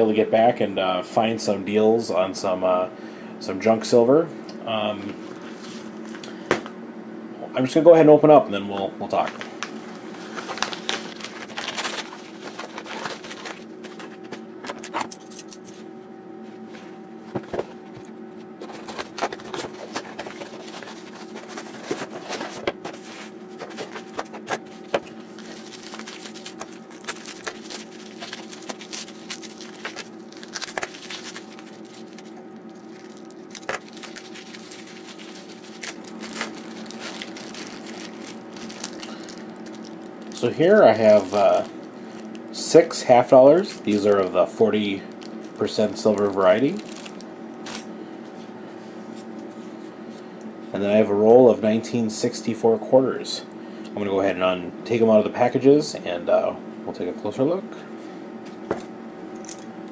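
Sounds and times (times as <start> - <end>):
steady low hum: 0.0 - 59.9
bubble wrap and plastic crinkling: 9.1 - 15.8, 18.6 - 47.9.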